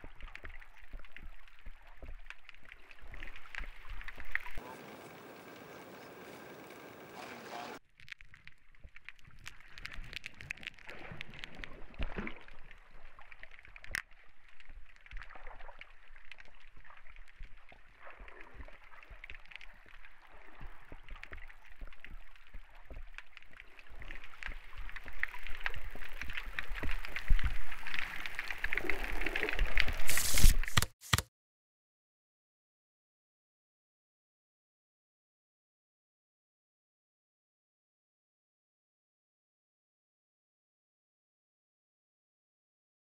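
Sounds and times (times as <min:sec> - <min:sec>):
shallow water sloshing: 0:00.0 - 0:30.8
crackling hiss: 0:02.4 - 0:11.6, 0:23.3 - 0:30.9.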